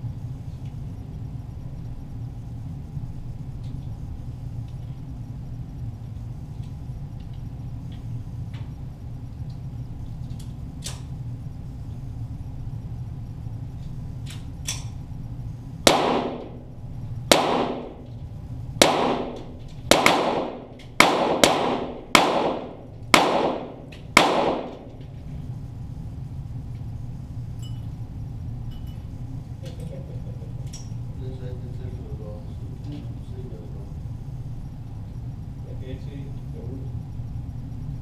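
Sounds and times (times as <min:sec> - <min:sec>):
pistol shots with echo: 0:15.9 - 0:16.6, 0:17.3 - 0:18.0, 0:18.8 - 0:24.9.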